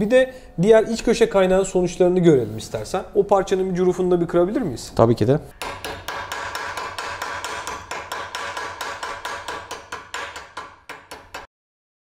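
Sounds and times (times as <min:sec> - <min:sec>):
chipping hammer striking metal: 0:05.6 - 0:11.5.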